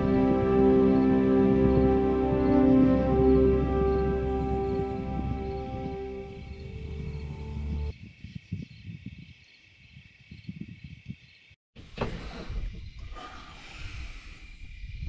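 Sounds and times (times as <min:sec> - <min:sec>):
music track: 0:00.0 - 0:07.9
crickets chirring: 0:00.0 - 0:11.6, 0:12.6 - 0:15.0.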